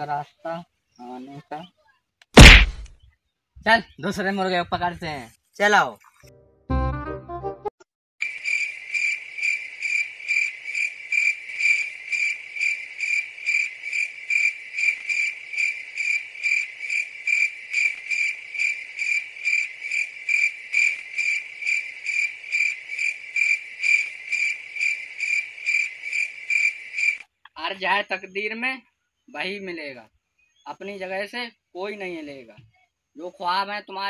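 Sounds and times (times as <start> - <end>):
cricket chirping: 8.2 - 27.3.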